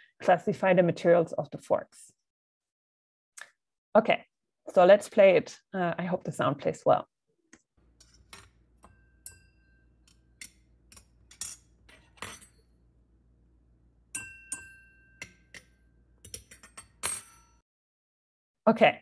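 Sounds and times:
forks clinking glasses: 8.8s - 12.6s, 14.2s - 17.6s.

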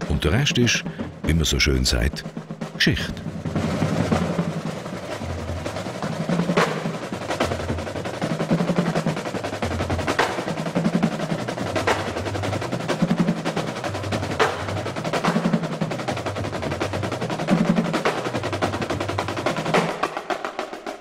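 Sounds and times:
bass drums beating: 0.0s - 4.4s
snare drums playing rolls: 0.0s - 21.0s.

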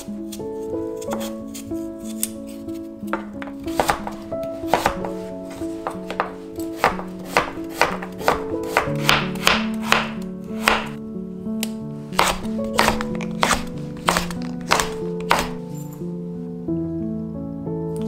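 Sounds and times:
soft background music: 0.0s - 18.0s
knife chopping on wooden board: 3.1s - 5.2s, 5.8s - 11.0s, 12.2s - 15.6s.

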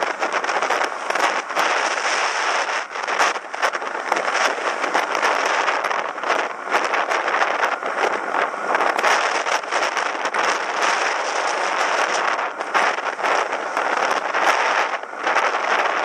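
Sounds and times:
wind and road noise while cycling: 0.0s - 16.0s.

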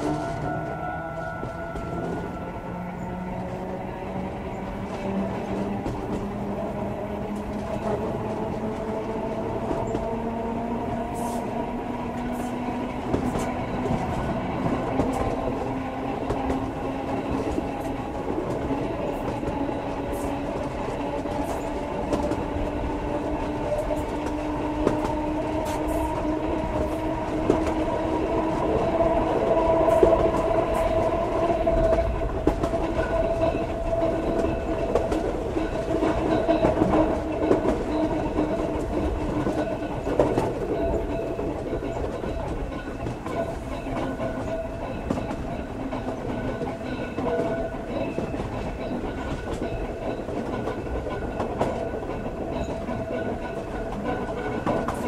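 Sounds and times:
train running rumble: 0.0s - 55.0s
wheels clicking over rail joints: 0.0s - 55.0s.

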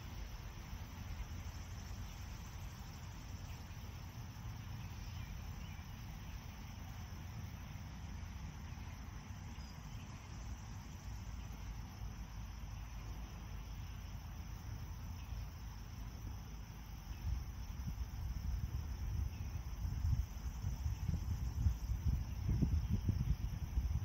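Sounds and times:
crickets chirring: 0.0s - 24.0s
faint bird chirps: 4.6s - 6.6s
wind rumble on microphone: 16.9s - 24.0s.

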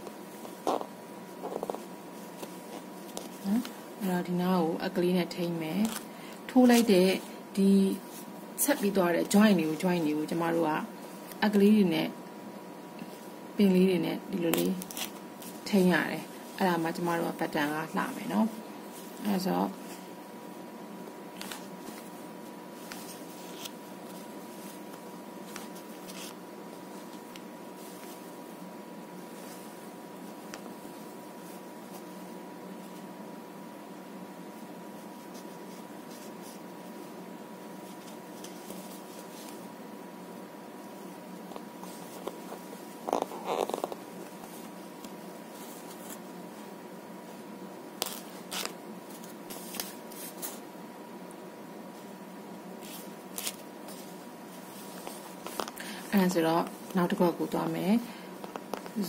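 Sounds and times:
thread and crochet hook rustling: 0.0s - 4.1s, 21.3s - 33.1s, 34.8s - 39.7s, 52.8s - 57.6s
scratchy rustle on paper: 22.8s - 28.3s, 37.7s - 39.7s.

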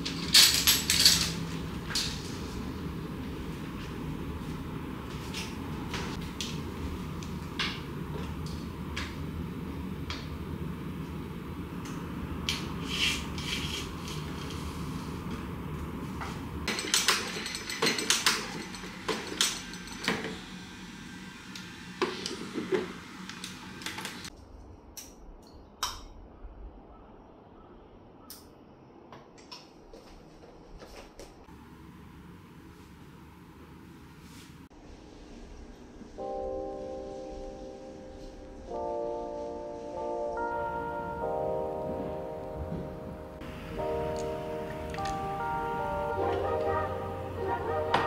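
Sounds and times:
steady background hum: 0.0s - 48.0s
dishes and cutlery clinking: 16.7s - 20.4s.

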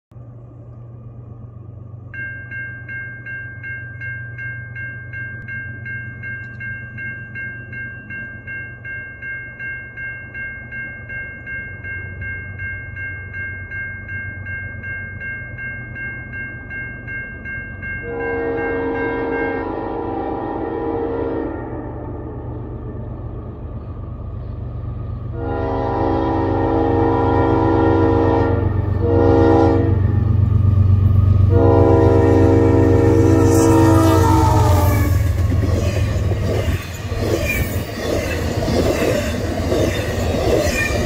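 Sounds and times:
crossing warning bell ringing: 1.7s - 41.0s
locomotive air horn: 18.0s - 21.9s, 25.3s - 30.2s, 31.5s - 35.2s
low rumble: 20.4s - 26.4s.

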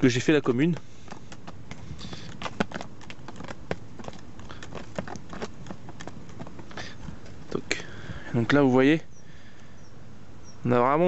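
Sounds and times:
gear clicks and taps: 0.5s - 7.4s.

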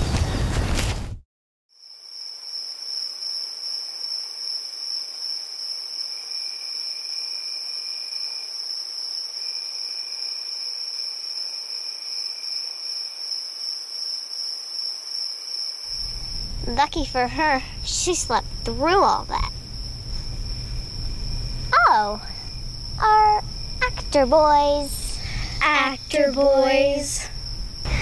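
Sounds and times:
crickets trilling: 1.8s - 28.0s
faint low insect trill: 1.8s - 28.0s.

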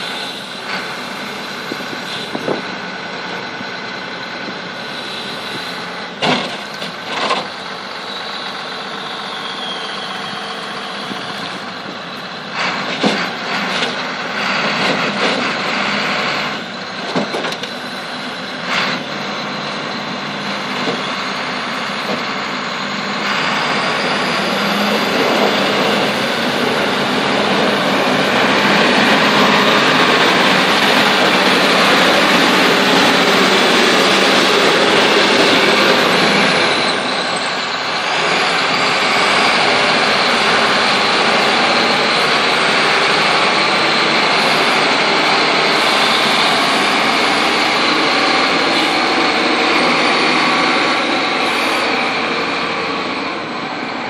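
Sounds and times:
diesel loader engine under load: 0.0s - 54.0s.

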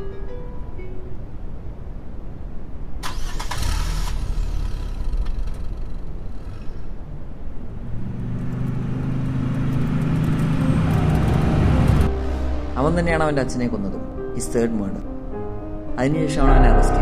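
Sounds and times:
car starter cranking: 3.0s - 6.5s.

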